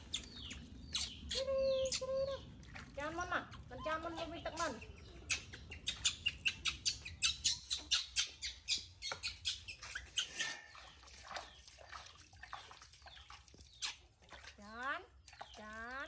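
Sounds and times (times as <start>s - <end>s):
baby monkey squeaking: 0.1s - 2.2s, 3.8s - 10.4s.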